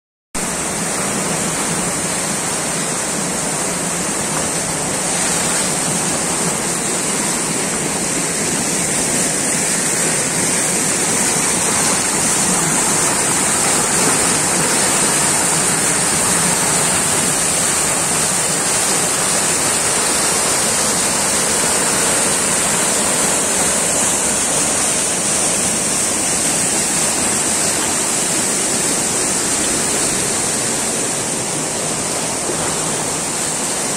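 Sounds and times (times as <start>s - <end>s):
river rushing over rocks: 0.4s - 33.9s.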